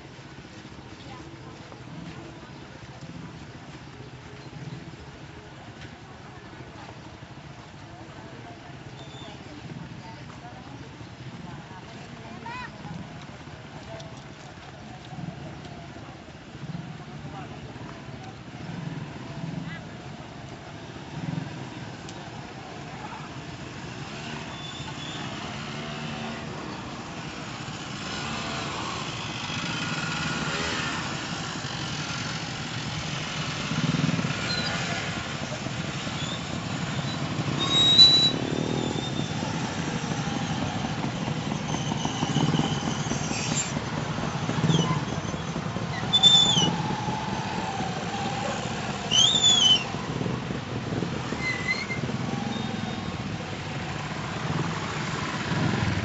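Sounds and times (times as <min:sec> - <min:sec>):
motorcycle engines passing: 0:00.0 - 0:56.0
short high squeals: 0:36.1 - 0:39.5, 0:41.4 - 0:47.0, 0:48.5 - 0:50.0, 0:51.3 - 0:53.2.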